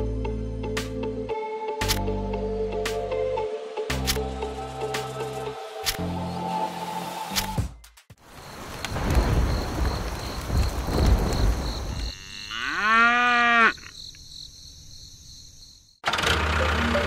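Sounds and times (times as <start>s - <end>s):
rumbling noise: 8.5s - 12.1s
cow mooing: 12.1s - 13.9s.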